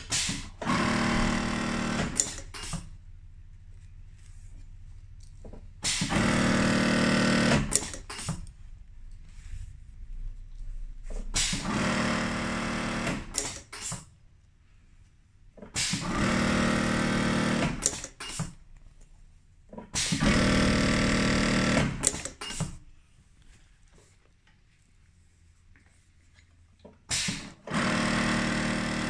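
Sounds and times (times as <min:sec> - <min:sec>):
hemming machine sewing: 0:00.0 - 0:02.9, 0:05.8 - 0:08.5, 0:11.3 - 0:14.1, 0:15.6 - 0:18.6, 0:19.9 - 0:22.8, 0:27.1 - 0:29.0.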